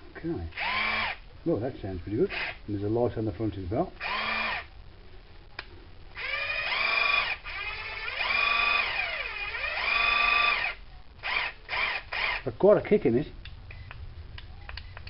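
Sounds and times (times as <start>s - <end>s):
cordless screwdriver motor whine: 0.6s - 1.2s, 4.0s - 4.6s, 6.2s - 12.4s.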